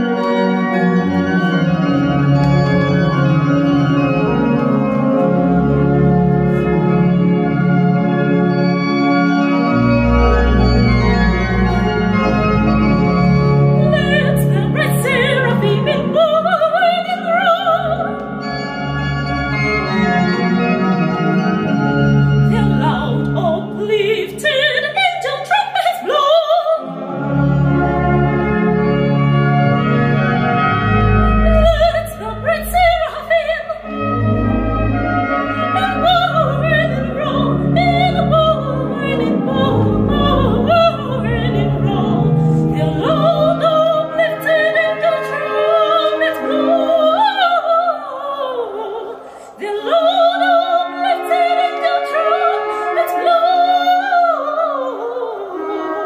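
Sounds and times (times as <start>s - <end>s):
church organ chords: 0.0s - 25.4s, 26.8s - 56.0s
soprano singing: 10.5s - 18.9s, 22.4s - 27.6s, 30.6s - 56.0s.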